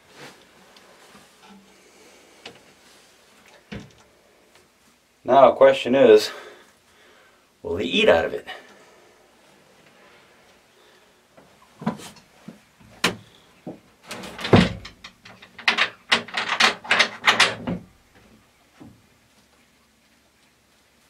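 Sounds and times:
knocks and clatters: 13.0 - 17.9.

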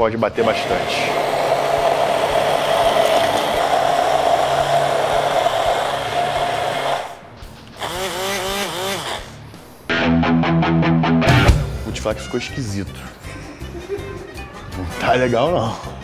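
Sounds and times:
immersion blender running: 0.4 - 7.2, 7.8 - 9.4.

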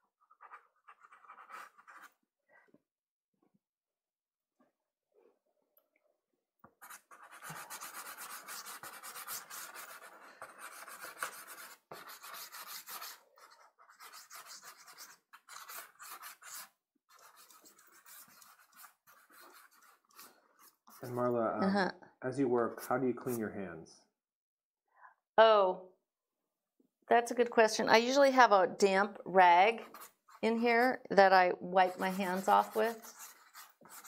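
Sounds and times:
pastel scratching on paper: 0.2 - 2.2, 6.8 - 21.4, 22.8 - 23.4, 29.7 - 31.0, 31.8 - 34.0.

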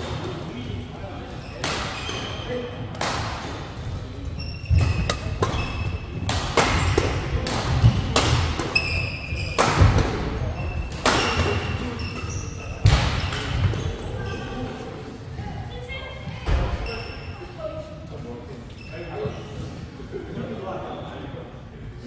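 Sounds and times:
shoe squeaks: 1.3 - 2.7, 4.3 - 6.2, 8.7 - 9.7, 10.5 - 14.7, 16.8 - 17.5, 18.7 - 19.6
rackets hitting shuttlecock: 2.9 - 3.7, 4.6 - 13.8.

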